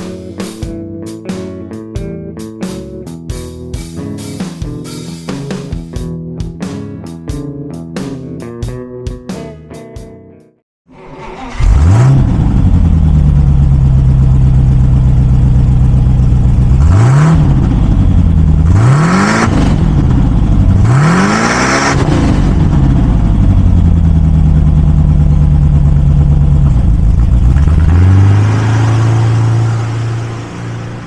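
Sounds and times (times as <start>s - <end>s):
car engine idling and revving: 10.9s - 31.0s
car pulling away: 10.9s - 31.0s.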